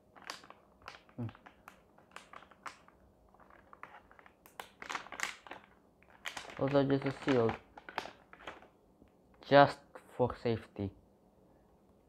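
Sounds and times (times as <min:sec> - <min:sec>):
plastic pouch crinkling: 0:00.0 - 0:08.8.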